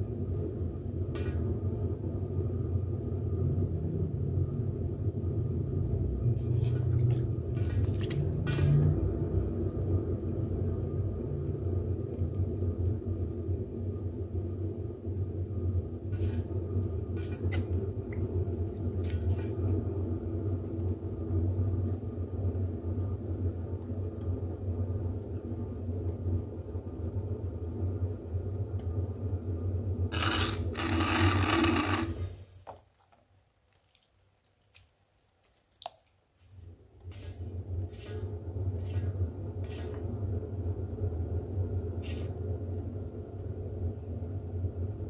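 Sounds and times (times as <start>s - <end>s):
potter's wheel motor humming: 30.1s - 32.4s.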